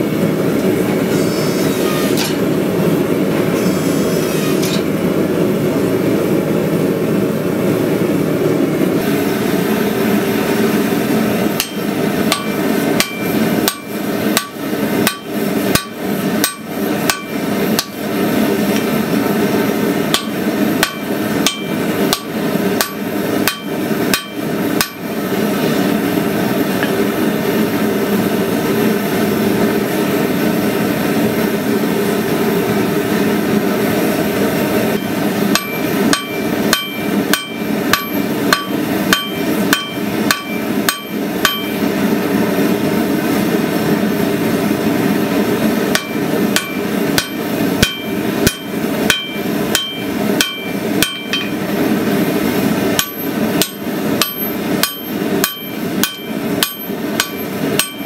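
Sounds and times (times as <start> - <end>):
hammer striking steel punch: 11.6 - 18.0, 20.1 - 25.1, 34.9 - 41.9, 45.9 - 51.7, 53.0 - 58.0.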